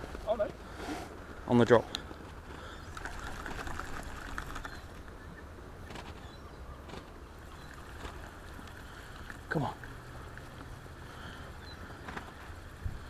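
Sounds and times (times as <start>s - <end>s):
wind rumble on microphone: 12.2s - 13.0s.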